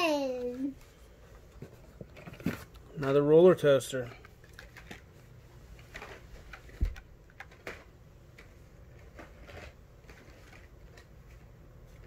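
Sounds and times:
plastic packaging clicks and rustles: 0:01.5 - 0:02.9, 0:04.2 - 0:05.2, 0:05.8 - 0:12.0.

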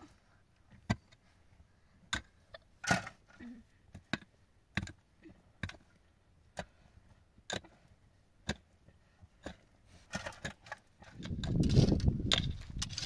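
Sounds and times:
rough scraping: 0:09.9 - 0:13.0.

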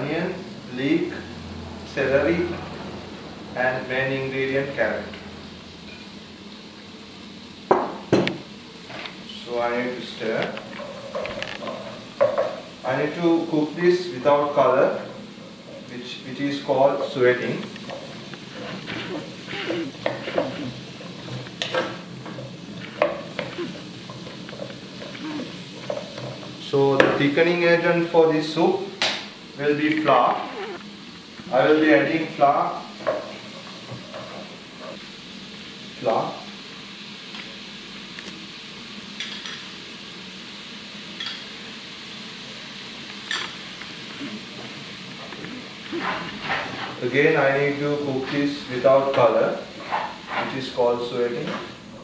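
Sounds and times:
vegetables sizzling in butter: 0:00.0 - 0:52.0
wooden spoon scraping a pan: 0:10.5 - 0:13.2, 0:16.8 - 0:26.6, 0:44.4 - 0:47.2, 0:49.7 - 0:50.8.

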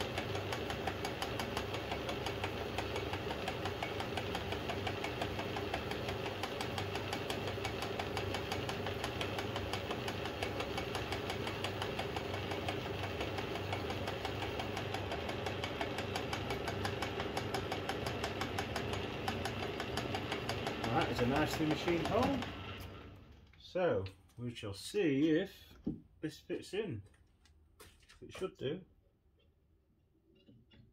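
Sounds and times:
metal lathe running: 0:00.0 - 0:23.2.

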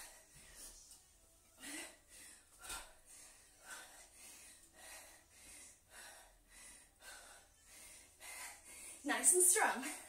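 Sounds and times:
woman breathing hard: 0:00.0 - 0:00.8, 0:01.5 - 0:09.1.

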